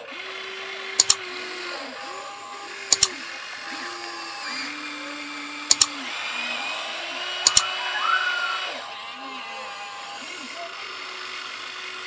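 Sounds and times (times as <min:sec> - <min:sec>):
electric motors whining: 0:00.0 - 0:12.0
sharp double clicks: 0:01.0 - 0:01.2, 0:02.9 - 0:03.2, 0:05.7 - 0:06.0, 0:07.5 - 0:07.7.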